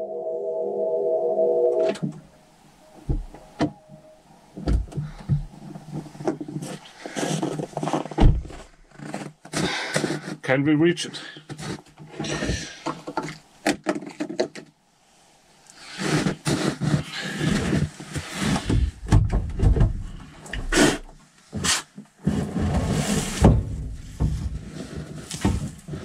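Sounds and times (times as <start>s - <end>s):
footsteps: 3.0s - 9.3s.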